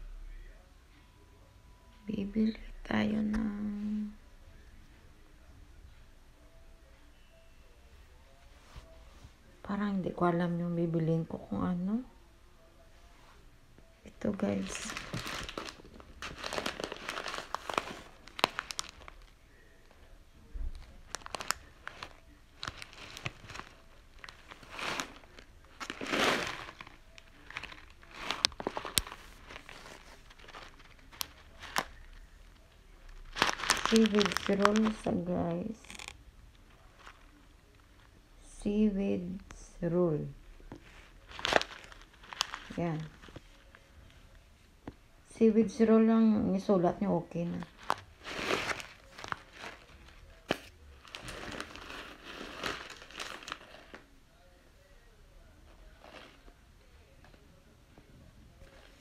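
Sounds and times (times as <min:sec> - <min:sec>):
plastic packaging crinkling: 0:14.1 - 0:19.8, 0:20.5 - 0:38.1, 0:40.7 - 0:43.9, 0:47.5 - 0:54.1, 0:55.8 - 0:56.6.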